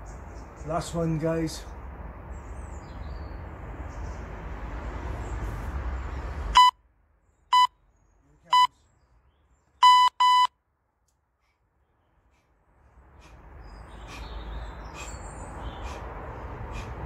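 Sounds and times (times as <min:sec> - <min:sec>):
electronic timer beeps: 0:06.6 - 0:06.8, 0:07.5 - 0:07.7, 0:09.8 - 0:10.5.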